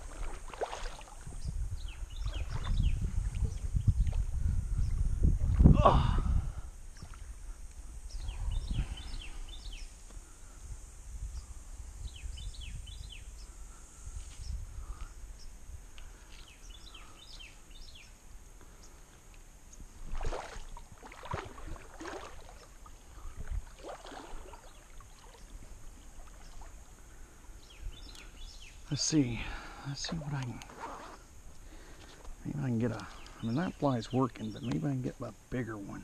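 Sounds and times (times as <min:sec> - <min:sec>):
paddle splashing water: 0:00.0 - 0:01.4, 0:02.0 - 0:04.3, 0:20.0 - 0:27.1, 0:30.0 - 0:32.3
small birds chirping: 0:01.0 - 0:05.2, 0:07.0 - 0:10.6, 0:11.3 - 0:19.9, 0:24.3 - 0:36.0.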